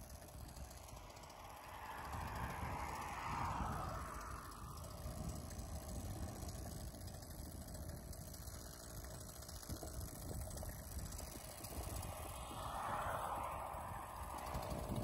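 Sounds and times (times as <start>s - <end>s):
small gas engine idling: 0.0s - 15.0s
low rumble: 0.2s - 6.5s, 10.8s - 15.0s.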